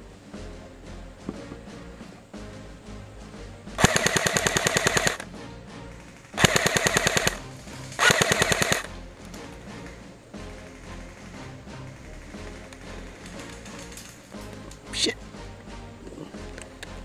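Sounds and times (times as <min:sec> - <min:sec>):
airsoft gun full-auto bursts: 0:03.8 - 0:05.2, 0:05.9 - 0:08.9.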